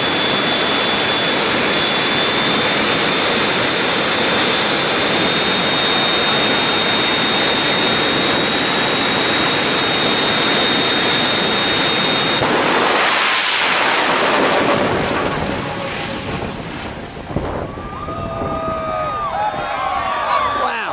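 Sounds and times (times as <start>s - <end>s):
high turbine whine: 0.0s - 20.9s
jet turbine engine roaring: 0.0s - 20.9s
jet car launch blast: 11.9s - 17.8s.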